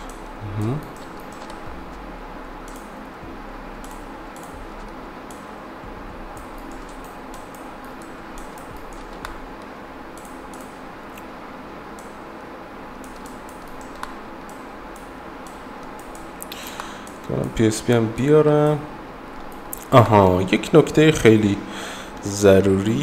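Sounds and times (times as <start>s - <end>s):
low hiss and hum: 0.0s - 23.0s
computer mouse clicks: 0.8s - 1.7s, 2.6s - 2.9s, 6.4s - 11.3s, 13.0s - 17.2s.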